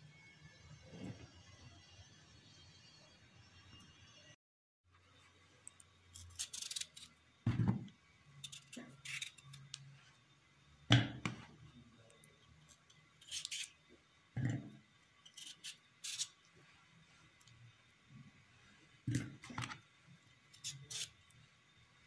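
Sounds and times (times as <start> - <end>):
knife slicing potato: 20.6 - 21.2.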